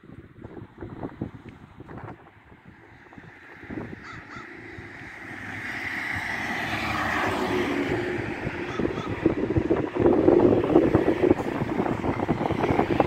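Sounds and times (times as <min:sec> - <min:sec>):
car tyre noise: 0:00.2 - 0:13.0
crow cawing: 0:04.0 - 0:04.7, 0:08.6 - 0:09.2.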